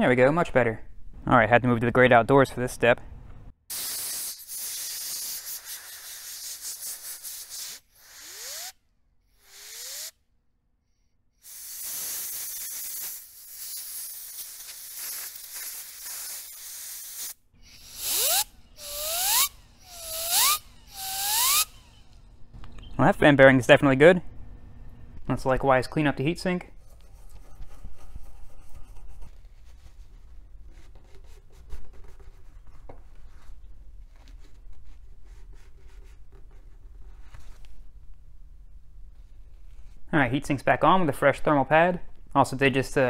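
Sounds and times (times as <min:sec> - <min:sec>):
compressed air blow gun hissing: 0:03.7 - 0:10.2, 0:11.4 - 0:22.0
fan whine spinning up: 0:17.8 - 0:25.4.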